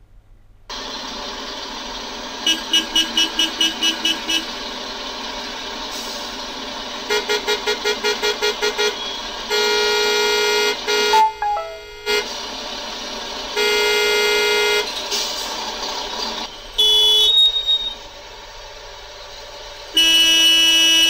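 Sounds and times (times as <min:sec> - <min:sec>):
steady traffic background: 0:00.0 - 0:21.0
car horns honking: 0:07.1 - 0:12.3
higher-pitched horn: 0:11.1 - 0:12.2.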